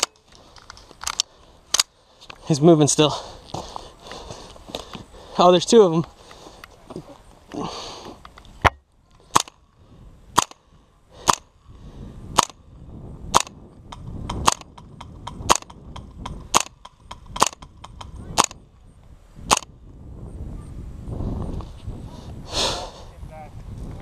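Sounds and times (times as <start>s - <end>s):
airsoft rifle shots: 9.3s - 9.6s, 10.4s - 10.6s, 11.2s - 11.5s, 12.4s - 12.6s, 13.3s - 13.6s, 14.3s - 18.6s, 19.5s - 19.7s.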